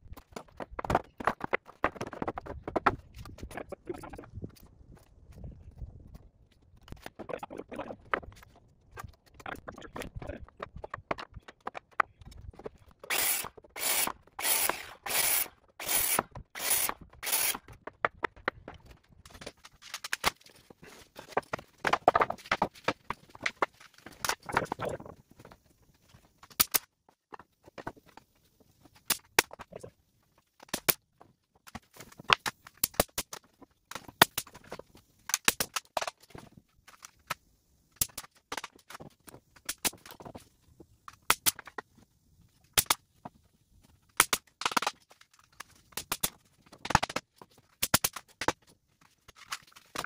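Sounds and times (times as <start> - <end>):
pneumatic nailer firing: 13.1 - 17.6.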